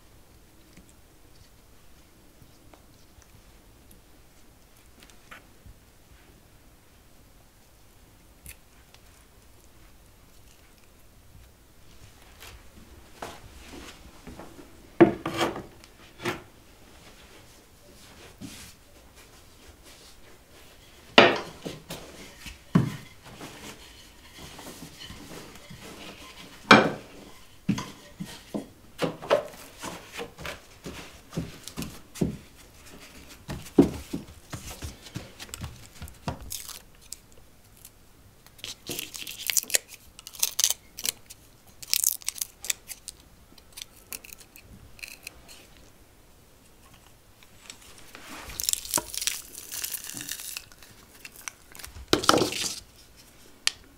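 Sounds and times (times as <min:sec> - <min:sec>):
crinkling and tearing: 0:32.8 - 0:45.9, 0:46.8 - 0:53.9.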